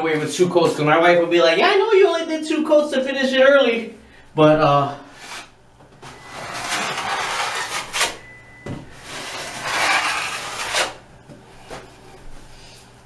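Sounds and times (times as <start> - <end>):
drywall knife scraping on wall: 5.1 - 5.6, 6.2 - 8.2, 9.0 - 11.0.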